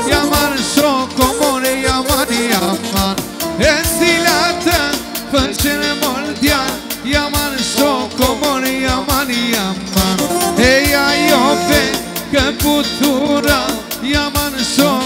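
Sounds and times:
wavering lead melody: 0.0s - 4.9s, 10.0s - 12.6s
drum beat: 0.0s - 5.8s, 10.0s - 13.6s, 14.7s - 15.0s.

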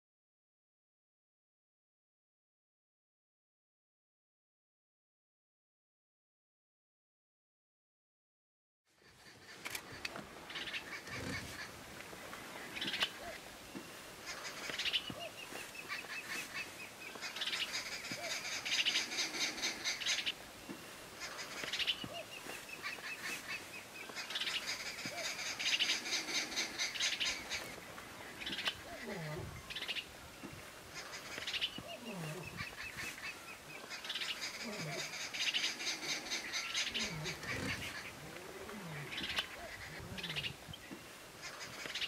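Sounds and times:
birds chattering rapidly: 9.0s - 42.0s.

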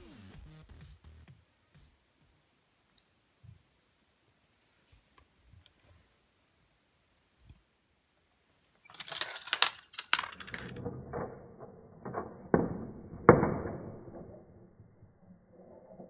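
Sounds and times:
marbles rolling and clattering: 8.9s - 16.0s.

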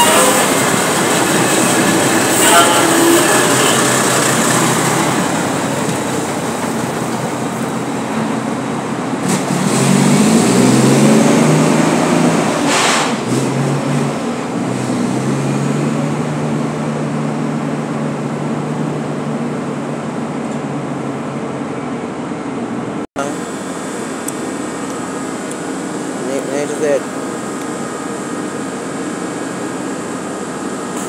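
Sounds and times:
truck diesel engine accelerating: 0.0s - 23.0s
short sharp noises: 12.6s - 13.3s.

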